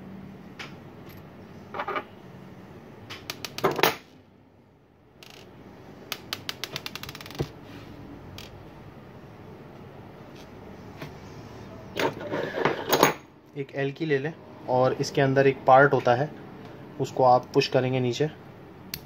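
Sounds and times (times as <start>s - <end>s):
metal parts clattering on wooden desk: 1.0s - 2.1s, 3.4s - 4.0s, 12.0s - 13.2s.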